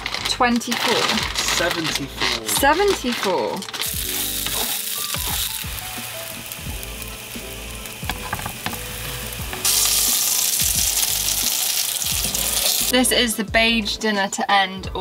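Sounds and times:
patties sizzling in a frying pan: 0:03.8 - 0:13.0.

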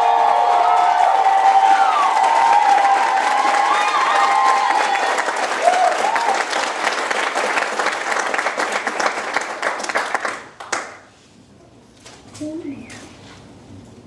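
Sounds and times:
short cheers: 0:00.0 - 0:06.6
audience applauding: 0:00.0 - 0:11.1.

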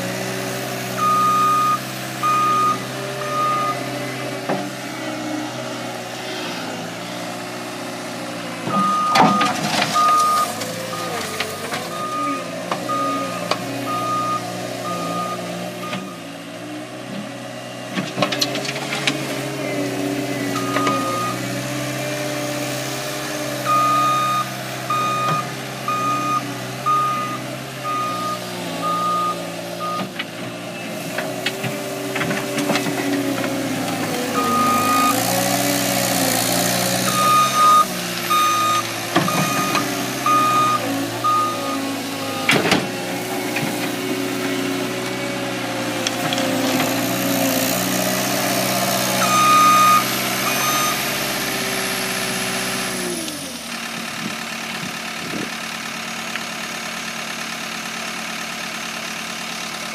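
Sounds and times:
diesel engine working under load: 0:00.0 - 0:59.9
backup alarm beeping: 0:01.0 - 0:02.8, 0:08.8 - 0:11.1, 0:23.7 - 0:30.1, 0:34.4 - 0:35.2, 0:37.1 - 0:42.5, 0:49.2 - 0:51.0.

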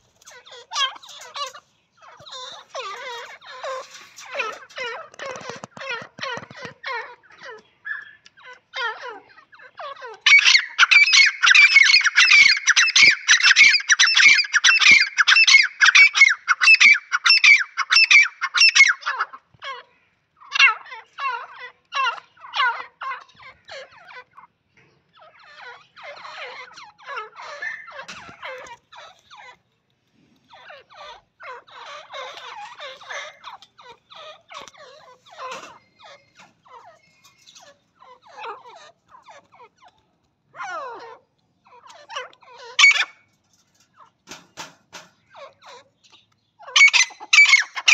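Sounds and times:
francolins calling: 0:00.0 - 0:24.5, 0:25.1 - 0:29.6, 0:30.5 - 0:40.0, 0:40.6 - 0:43.3, 0:45.2 - 0:47.9.

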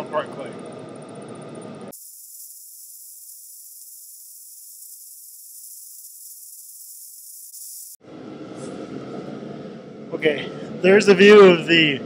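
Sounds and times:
high-pitched hiss: 0:01.9 - 0:08.0.

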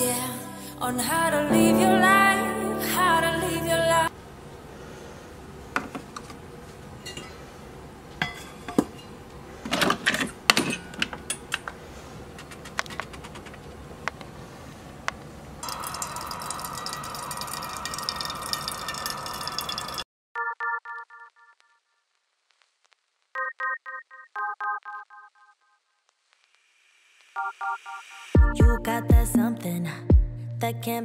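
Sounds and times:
coffee maker whirring hiss: 0:15.6 - 0:20.0.

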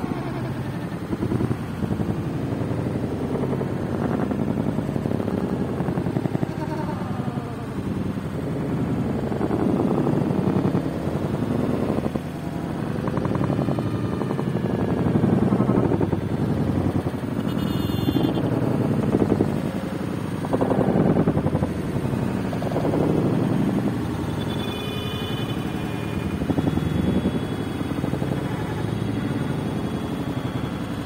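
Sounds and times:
wind buffeting microphone: 0:18.5 - 0:24.1.

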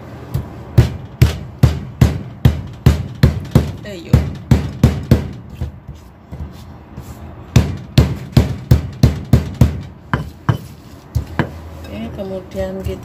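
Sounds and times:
sharp thudding pounding knocks: 0:00.4 - 0:06.6, 0:07.5 - 0:11.6.

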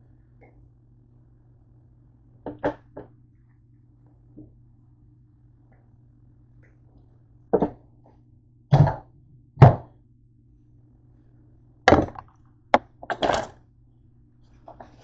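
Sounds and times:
knocks on kitchen counter: 0:07.6 - 0:07.8, 0:08.7 - 0:09.9, 0:11.9 - 0:12.2.

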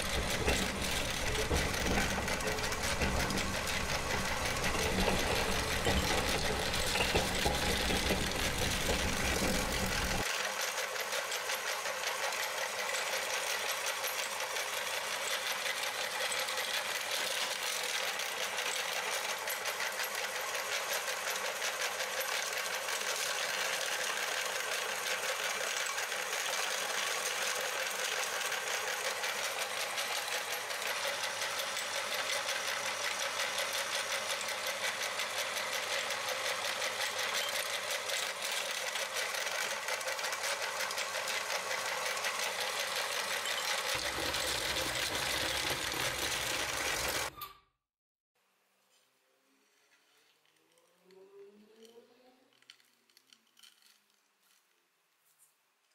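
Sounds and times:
meat grinder crunching chalk: 0:00.0 - 0:47.3.

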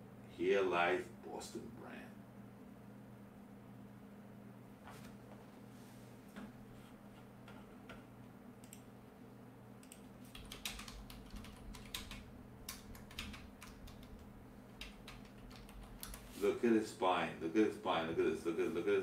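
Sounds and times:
low steady hum: 0:00.0 - 0:19.0
keyboard typing clicks: 0:08.6 - 0:08.9, 0:09.8 - 0:16.3.

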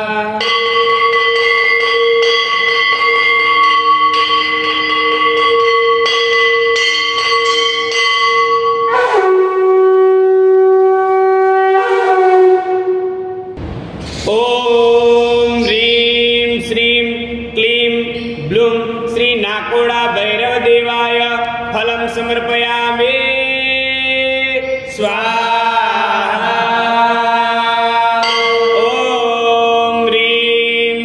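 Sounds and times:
conch shell blown: 0:08.7 - 0:13.6.

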